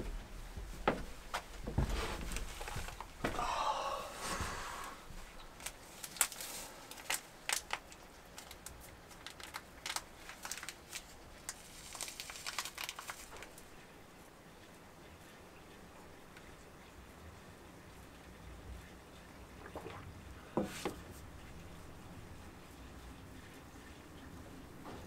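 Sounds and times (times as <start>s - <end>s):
rustling and crinkling: 0.0s - 3.4s, 4.2s - 13.8s.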